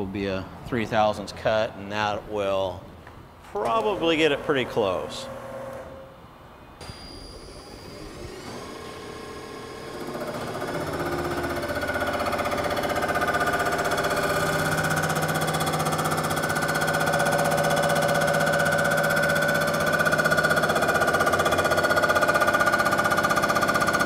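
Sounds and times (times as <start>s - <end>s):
milling machine whine: 6.8s - 24.0s.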